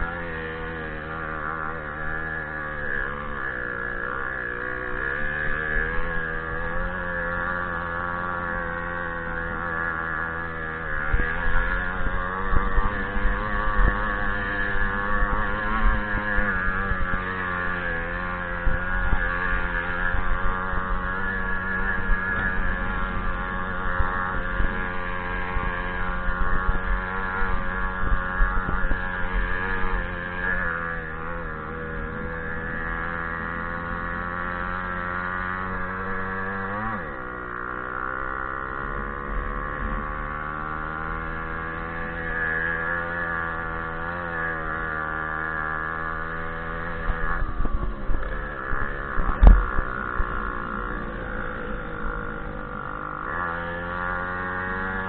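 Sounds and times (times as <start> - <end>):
moped engine running: 0.0 - 55.0.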